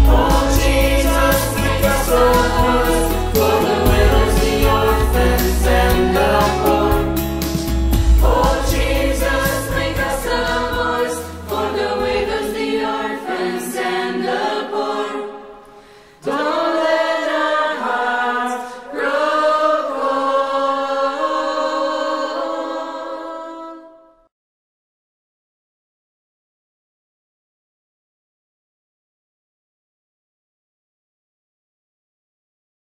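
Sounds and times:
band backing music: 0:00.0 - 0:12.4
voices singing in harmony: 0:00.0 - 0:24.2.

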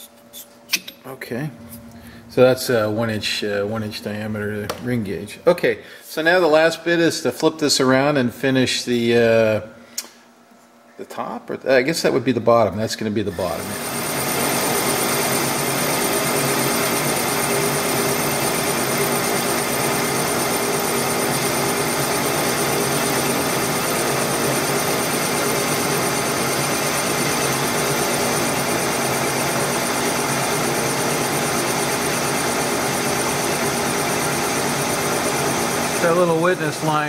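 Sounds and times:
metal lathe running: 0:13.4 - 0:37.0.

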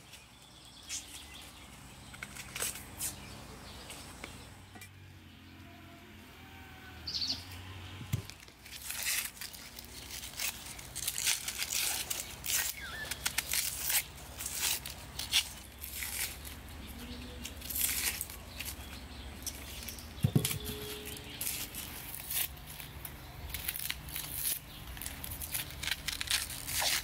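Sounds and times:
onion skins crackling and tearing: 0:08.1 - 0:27.0.

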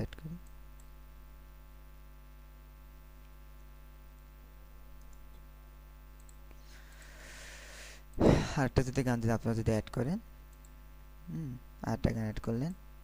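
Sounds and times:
electrical mains hum: 0:00.0 - 0:13.0
faint mouse clicks: 0:05.0 - 0:05.5, 0:06.1 - 0:07.1, 0:10.5 - 0:10.8.

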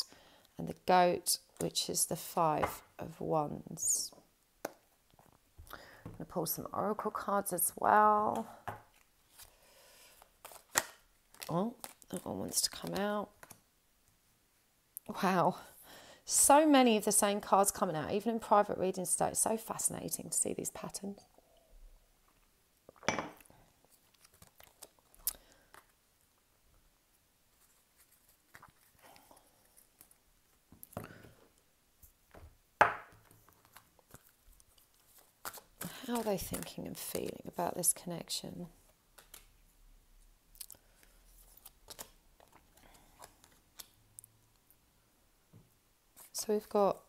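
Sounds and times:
cards being shuffled: 0:08.3 - 0:13.6, 0:27.5 - 0:30.2, 0:33.4 - 0:37.5, 0:39.1 - 0:39.5, 0:41.0 - 0:44.0.

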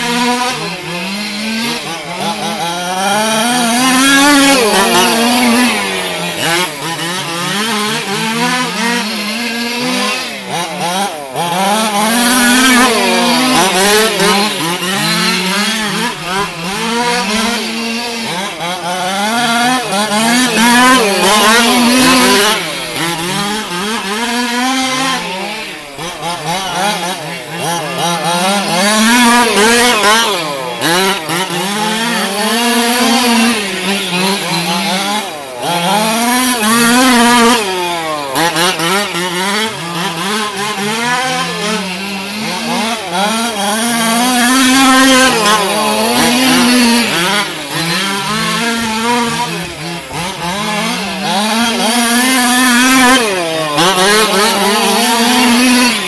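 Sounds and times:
rc car engines revving: 0:00.0 - 0:56.0.

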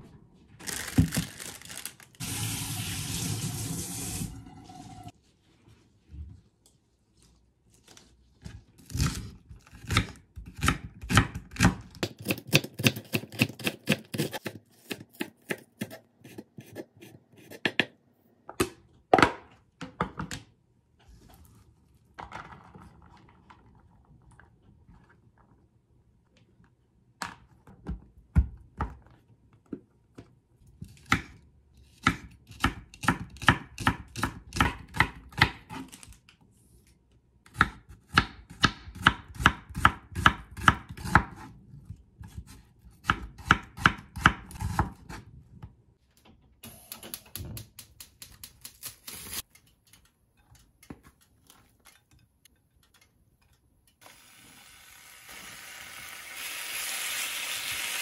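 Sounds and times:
meat sizzling in frying pan: 0:54.2 - 0:58.0.

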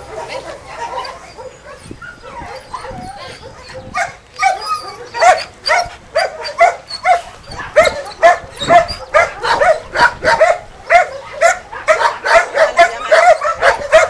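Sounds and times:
dog barking: 0:00.3 - 0:14.0.

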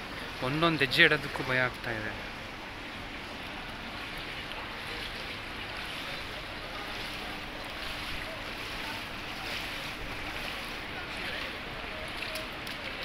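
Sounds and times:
water sloshing around wading legs: 0:00.0 - 0:13.0.

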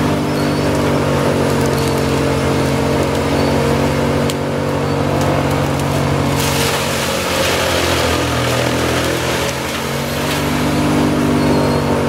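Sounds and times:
wood chipper engine humming: 0:00.0 - 0:12.0
hissing rush of material: 0:06.4 - 0:10.7.

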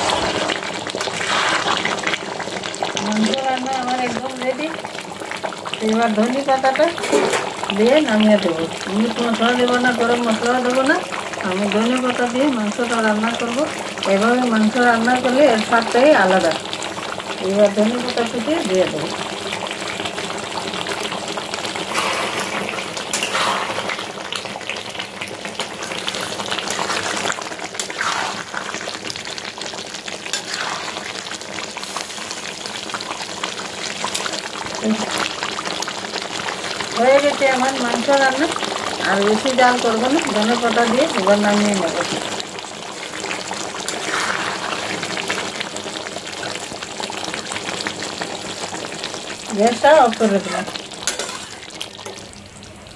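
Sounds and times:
ladle stirring thick gravy: 0:00.0 - 0:02.9, 0:21.8 - 0:32.1, 0:43.0 - 0:46.5
curry simmering with crackle and hiss: 0:00.0 - 0:52.9
metal spatula stirring gravy: 0:43.9 - 0:45.0, 0:51.0 - 0:51.6.

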